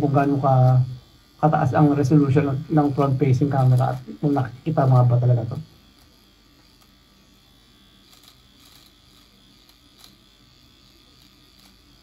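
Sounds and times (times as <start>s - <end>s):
electric shaver buzzing: 0.0s - 12.0s
light clicks of shaver cutting: 0.1s - 1.1s, 1.8s - 7.0s, 8.0s - 12.0s.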